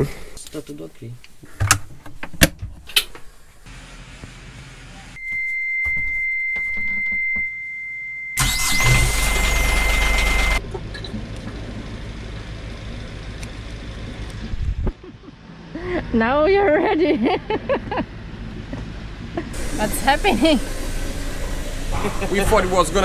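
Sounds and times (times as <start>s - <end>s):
alarm buzzer beep: 5.2s - 10.6s
starter motor cranking: 8.4s - 10.6s
diesel engine idling: 8.4s - 23.0s.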